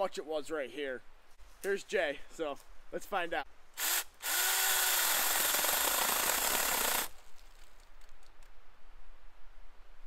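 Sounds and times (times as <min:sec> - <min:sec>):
mini chainsaw running: 0:03.8 - 0:07.1
faint clicks and crackles: 0:07.1 - 0:08.6.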